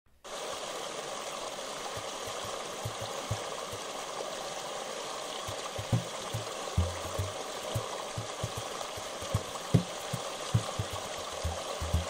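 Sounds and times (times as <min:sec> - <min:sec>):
water rushing over rocks: 0:00.3 - 0:12.0
soft low thumps: 0:02.8 - 0:03.4, 0:05.5 - 0:12.0.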